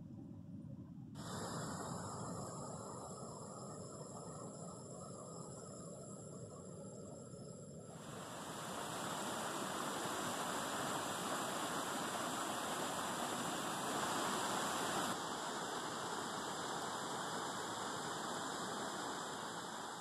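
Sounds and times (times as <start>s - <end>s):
stream rushing over rocks: 8.0s - 20.0s.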